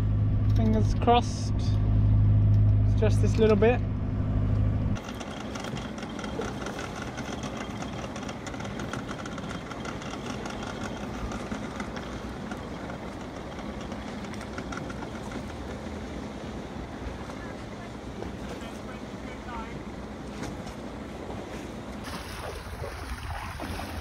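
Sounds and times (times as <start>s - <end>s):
boat engine humming: 0.0s - 24.0s
outboard motor running: 0.0s - 24.0s
water splashing: 22.0s - 24.0s.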